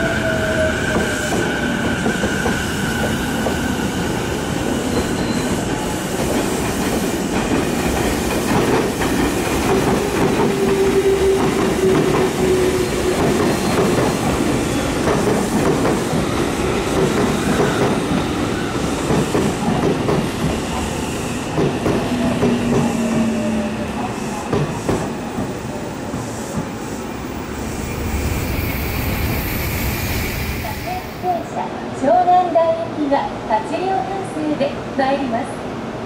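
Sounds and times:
train wheels clacking over rail joints: 6.2 - 16.2.

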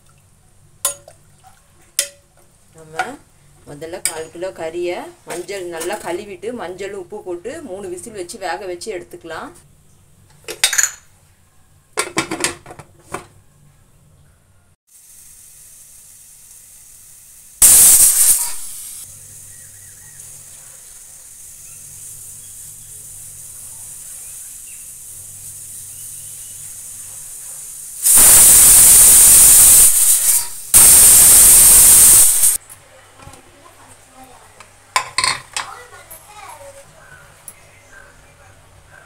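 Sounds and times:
faint steam hiss: 14.9 - 32.6
pressure cooker whistling: 17.6 - 20.1, 25.8 - 26.8, 28.0 - 32.6.

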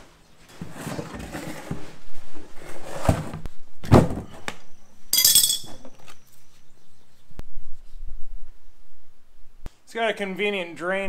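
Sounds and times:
wrenches clinking: 5.2 - 6.0.

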